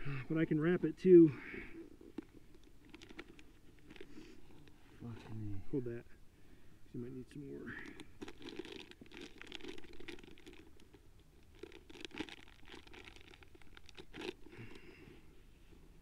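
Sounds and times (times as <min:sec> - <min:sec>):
small clicks and crinkles: 0:01.7 - 0:05.6, 0:07.6 - 0:16.0.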